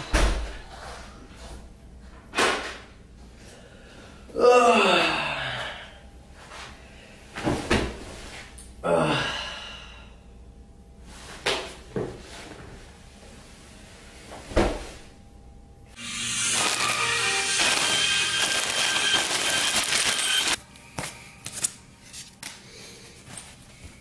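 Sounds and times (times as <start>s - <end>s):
man sighing: 4.3s - 6.0s, 8.8s - 10.2s.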